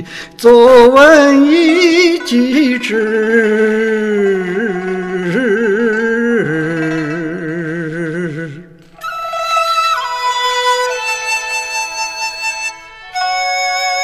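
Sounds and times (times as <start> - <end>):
man chanting with vibrato: 0.0 - 8.7.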